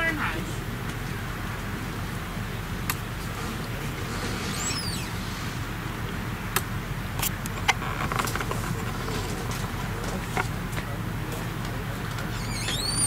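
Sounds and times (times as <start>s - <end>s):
distant traffic rumble: 0.0s - 13.0s
high falling chirp: 4.4s - 5.4s.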